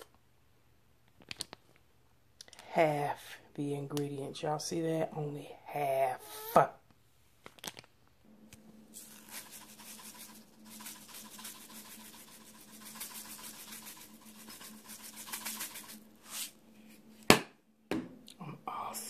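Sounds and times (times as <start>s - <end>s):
seeds rattling from a shaker: 8.9s - 16.6s.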